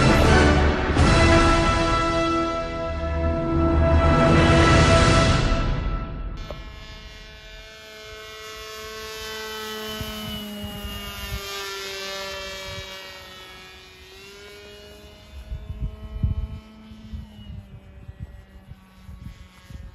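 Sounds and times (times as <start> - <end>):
rc plane motor whining: 6.3 - 19.9
wind buffeting microphone: 8.6 - 13.5, 15.0 - 19.9.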